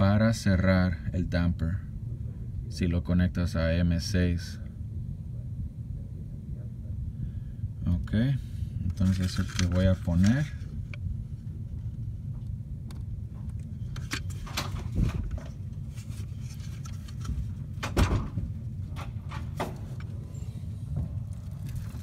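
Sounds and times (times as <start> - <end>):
steady low rumble: 0.0 - 22.0
handling clicks and rubbing: 8.9 - 11.0, 12.8 - 18.0.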